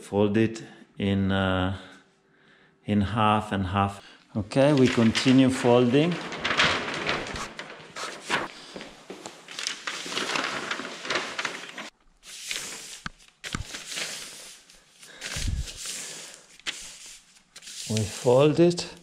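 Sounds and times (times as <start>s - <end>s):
plastic sheet rustling and crinkling: 4.5s - 19.0s.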